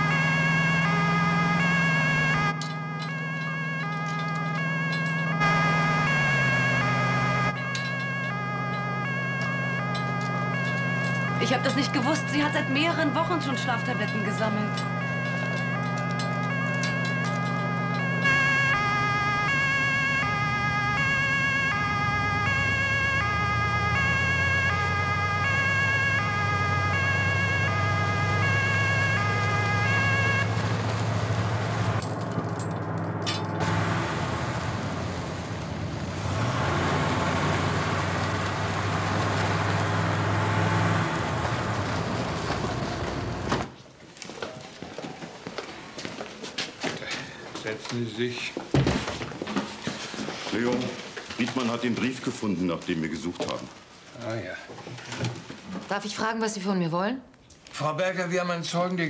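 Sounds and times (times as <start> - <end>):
two-tone siren: 0.0 - 41.8.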